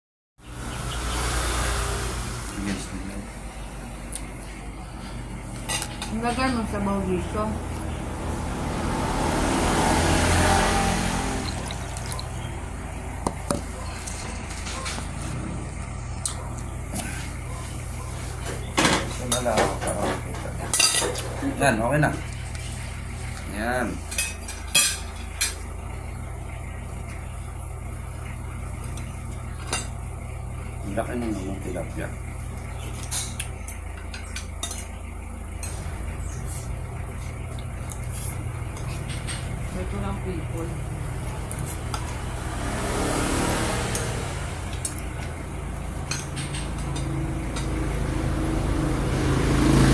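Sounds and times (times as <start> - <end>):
tableware clinks: 18.8 - 21.4.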